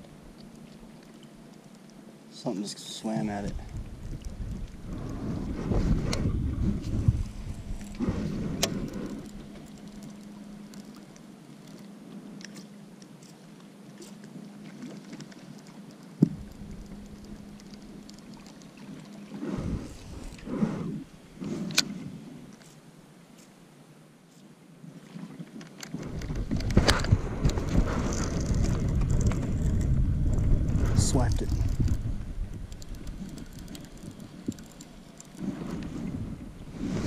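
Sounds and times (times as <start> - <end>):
low rumbling: 3.4 - 10.7, 19.3 - 21.4, 26.1 - 37.0.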